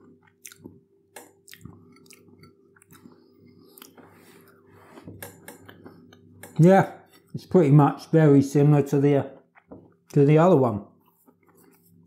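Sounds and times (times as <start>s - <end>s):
man chewing crunchy food: 0.0s - 6.4s.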